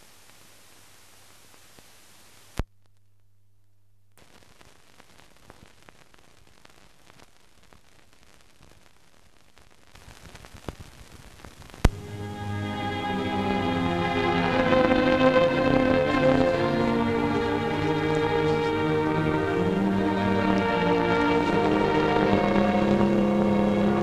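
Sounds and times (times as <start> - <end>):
crackle and pops: 0.0 - 24.0
film soundtrack hiss: 0.0 - 24.0
low hum: 11.9 - 24.0.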